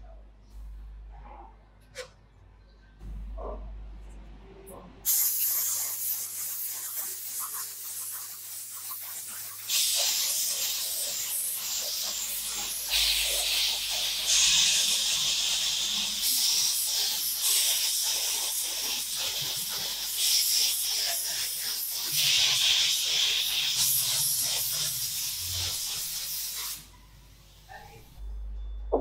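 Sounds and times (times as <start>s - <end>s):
spray gun hissing: 5.0s - 27.8s.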